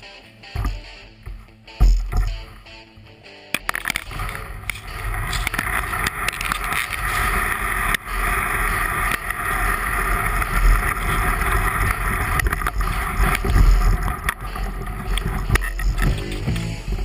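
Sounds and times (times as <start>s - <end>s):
kayak hull grinding over pebbles: 3.6s - 17.0s
paddle strokes splashing: 3.8s - 17.0s.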